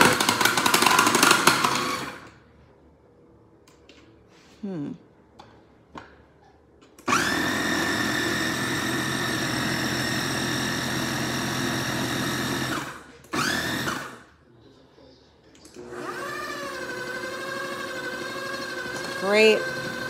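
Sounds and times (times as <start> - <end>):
food processor motor chopping: 0.0 - 2.3, 7.1 - 14.2, 15.8 - 20.0.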